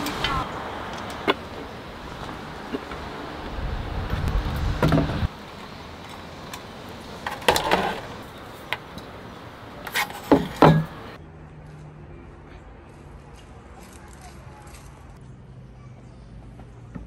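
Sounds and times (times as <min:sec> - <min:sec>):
camping gear knocking and clanking: 0:04.6 - 0:09.2, 0:09.8 - 0:11.2.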